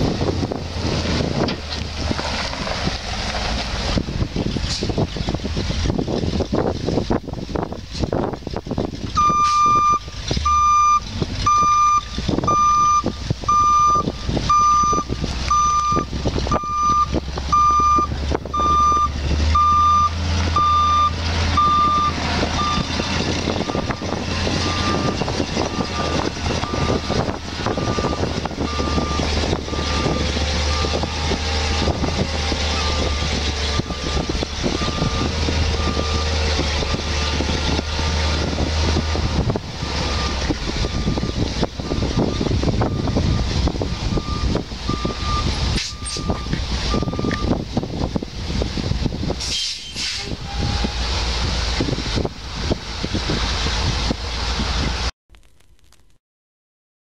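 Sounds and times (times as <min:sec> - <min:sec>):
truck engine running: 0:00.0 - 0:49.4
reverse alarm beeping: 0:09.2 - 0:22.9, 0:44.1 - 0:47.5.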